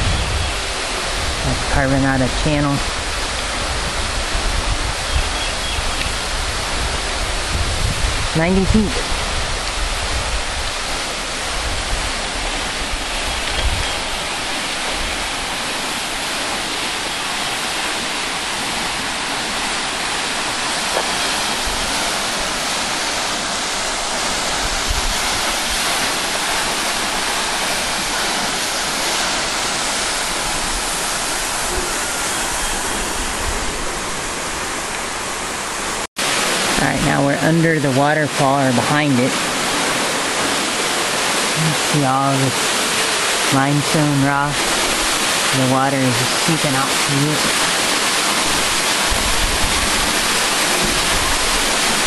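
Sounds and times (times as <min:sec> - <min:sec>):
waterfall rushing: 0:00.0 - 0:52.0.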